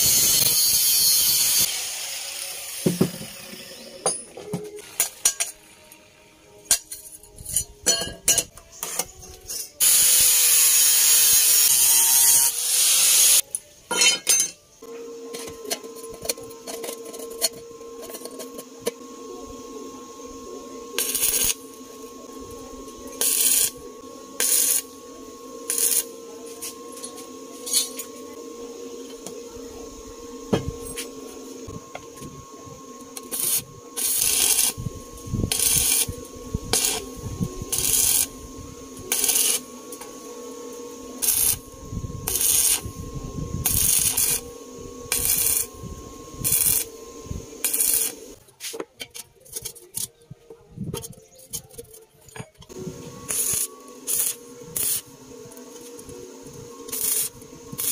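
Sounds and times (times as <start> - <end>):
arc welder crackling hiss: 0.0 - 50.2, 51.0 - 57.9
steady hum: 13.4 - 57.9.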